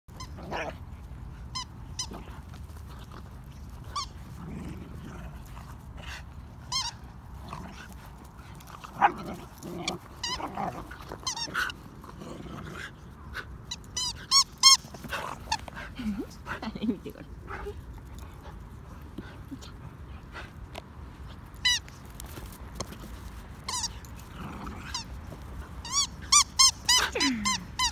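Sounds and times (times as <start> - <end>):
dogs play growling: 0.1 - 27.9
dog yipping and yelping: 25.8 - 27.9.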